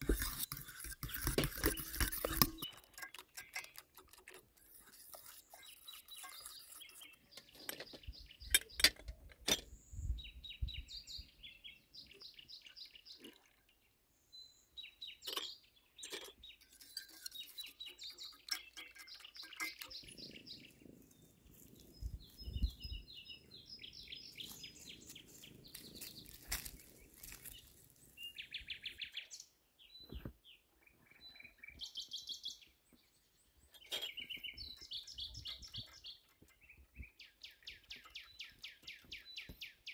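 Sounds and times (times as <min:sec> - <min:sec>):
small birds chirping: 0:00.0 - 0:39.9
sharp clicks and knocks: 0:07.3 - 0:09.7.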